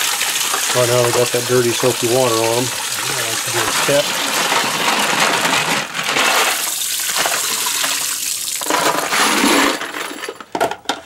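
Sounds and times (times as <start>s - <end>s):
tap water splashing into sink: 0.0s - 4.1s
water emptied down drain: 0.0s - 9.4s.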